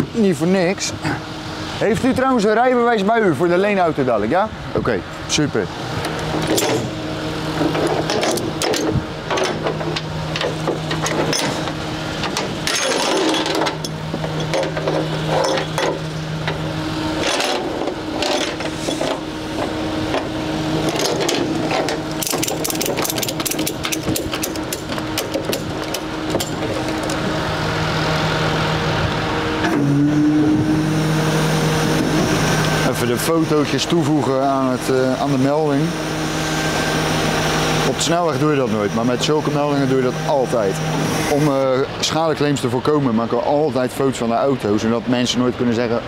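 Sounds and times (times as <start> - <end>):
vehicle engine humming: 0.0 - 44.8
metallic clicks and knocks: 7.6 - 16.6, 20.1 - 27.2.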